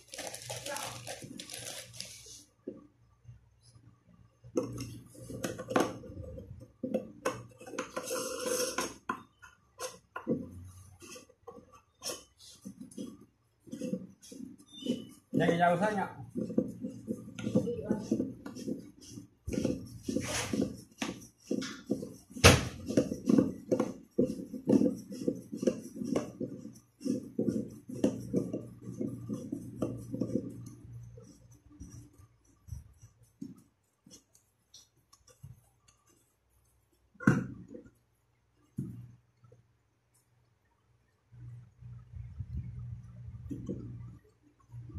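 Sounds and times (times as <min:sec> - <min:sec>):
scraping on cistern: 0:04.7 - 0:33.0.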